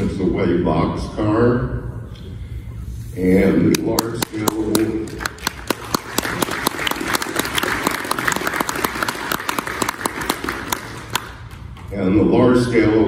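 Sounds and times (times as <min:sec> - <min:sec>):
audience applauding: 0:04.0 - 0:11.8.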